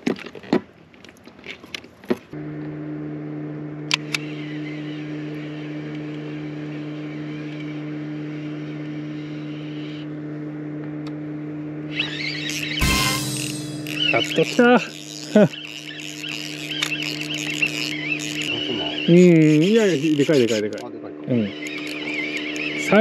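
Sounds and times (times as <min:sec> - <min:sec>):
motor humming: 0:02.3 - 0:23.0.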